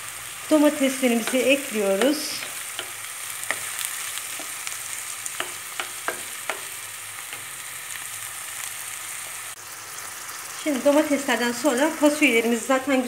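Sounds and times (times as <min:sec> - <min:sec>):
vegetables sizzling in oil: 0:00.0 - 0:13.0
spoon scraping a pan: 0:01.0 - 0:07.7.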